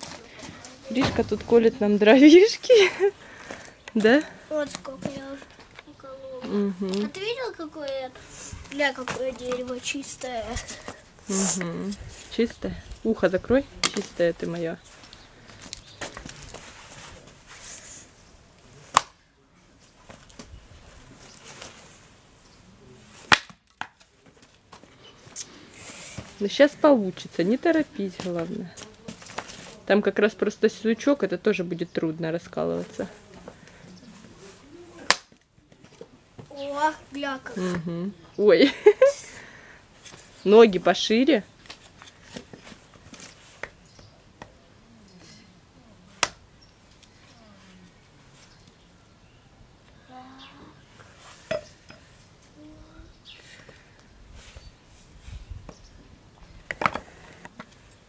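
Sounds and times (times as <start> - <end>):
wood chips knocking and rustling: 0.8 - 3.7
hatchet chopping firewood: 18.9 - 19.2, 23.3 - 24.0, 35.1 - 35.4.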